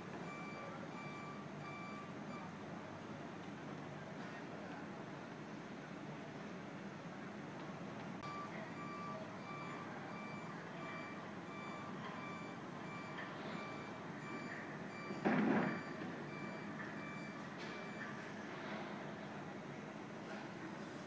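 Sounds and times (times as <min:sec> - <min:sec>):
construction site noise: 0:00.0 - 0:21.0
reversing alarm beeping: 0:00.2 - 0:02.6, 0:08.2 - 0:18.2.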